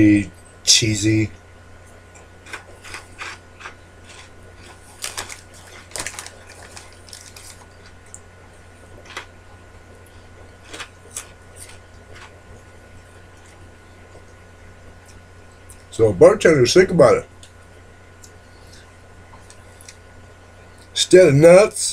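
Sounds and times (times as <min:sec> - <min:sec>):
low electrical hum: 0:00.0 - 0:21.9
crunchy snack chewing: 0:02.2 - 0:08.2, 0:09.0 - 0:09.3, 0:10.6 - 0:12.4
foil snack bag crinkling: 0:02.4 - 0:08.2, 0:10.6 - 0:12.4.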